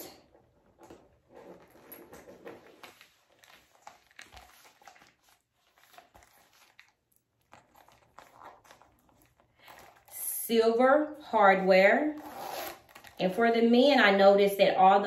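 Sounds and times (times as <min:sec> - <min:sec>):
canvas bag rustling and clicking: 0:00.3 - 0:10.2, 0:12.1 - 0:13.4.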